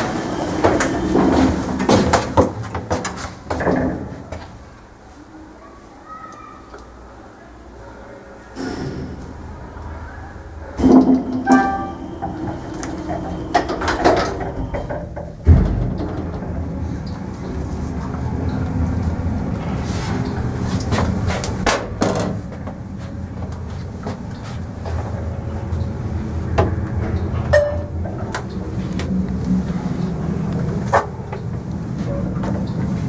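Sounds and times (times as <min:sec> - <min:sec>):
elevator doors clunking shut: 0:00.0 - 0:04.6, 0:08.5 - 0:33.0
elevator humming: 0:00.0 - 0:33.0
elevator car thud: 0:10.8 - 0:17.3.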